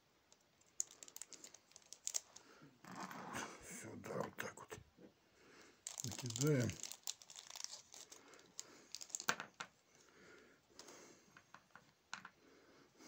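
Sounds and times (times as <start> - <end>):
metal beads clicking on plastic mat: 0.3 - 2.4, 5.8 - 9.7
plastic bag crinkling: 0.6 - 2.4, 5.8 - 9.3.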